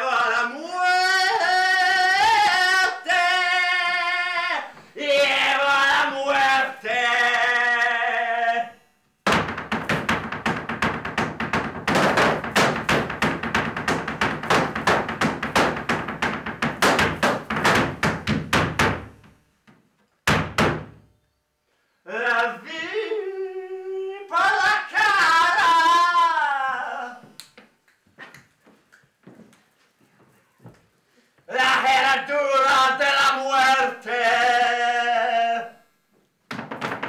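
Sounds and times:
person singing: 0.0s - 8.8s, 22.1s - 27.3s, 31.5s - 35.8s
rhythmic thudding knocks: 9.2s - 19.3s, 20.2s - 21.0s, 36.5s - 37.0s.

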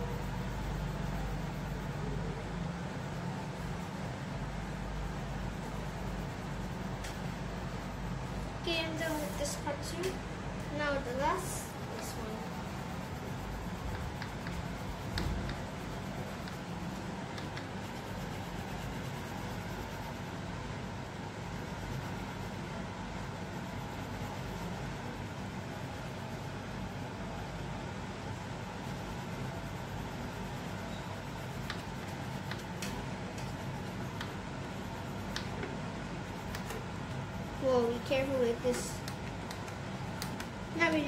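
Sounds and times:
low background hum: 0.0s - 41.0s
pencil strokes on paper: 8.8s - 9.7s
pencil scratching on paper: 33.3s - 35.6s.

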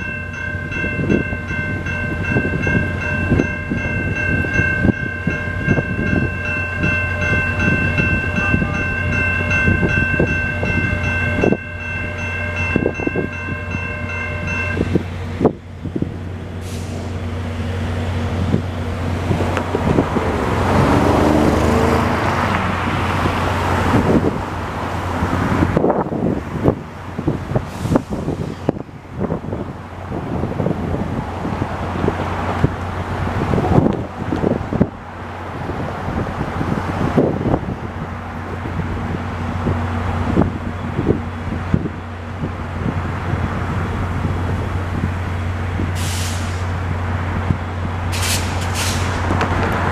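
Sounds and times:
level-crossing warning bell ringing: 0.0s - 15.2s
idling locomotive hum: 0.0s - 49.9s
cars driving past: 16.6s - 26.7s, 42.8s - 49.9s.

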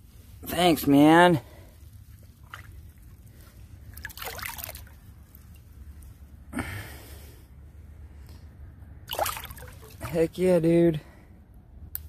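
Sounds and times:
river water trickling: 0.4s - 6.4s, 9.0s - 10.6s
fish splashing: 2.2s - 5.6s, 9.0s - 10.1s.

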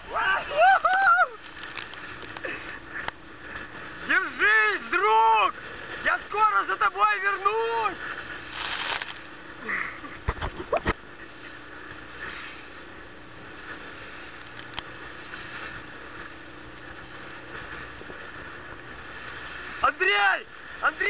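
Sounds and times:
motorboat engine drone: 0.0s - 21.0s
rushing water: 0.0s - 21.0s
splashing spray: 7.2s - 9.8s.

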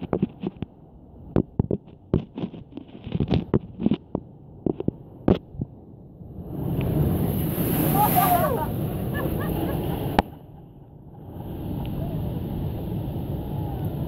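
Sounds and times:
wind: 0.0s - 14.0s
surf hissing: 6.4s - 14.0s.

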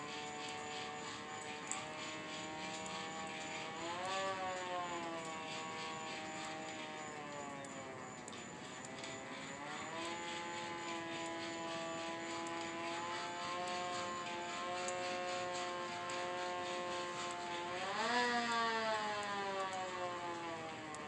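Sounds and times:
hand-crank siren wailing: 0.0s - 21.0s.

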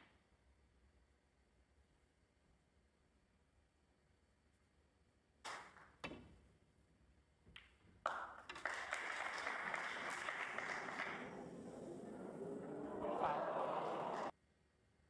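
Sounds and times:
snooker balls clicking: 7.5s - 14.3s
audience applause: 8.1s - 14.3s.

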